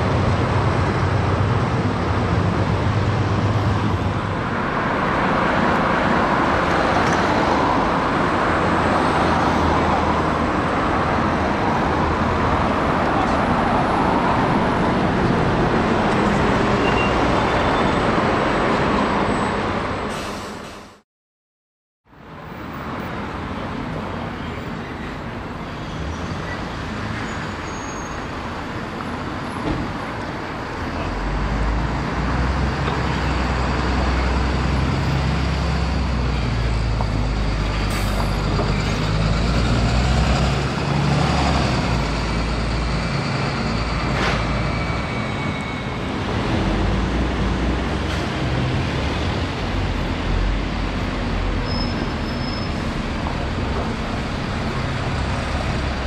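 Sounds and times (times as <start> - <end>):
street traffic: 0.0 - 21.0, 22.0 - 56.0
bus diesel engine rumble: 22.2 - 56.0.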